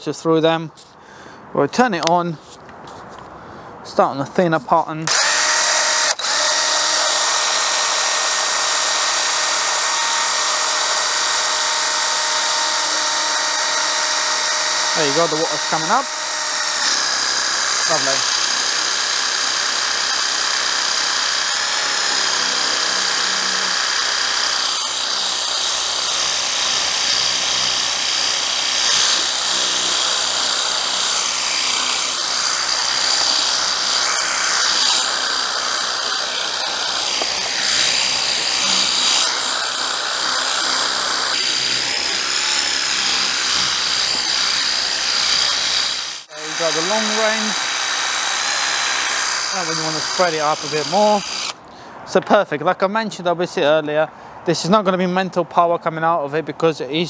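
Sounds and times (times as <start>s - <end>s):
pump high whine: 5.1s - 51.6s.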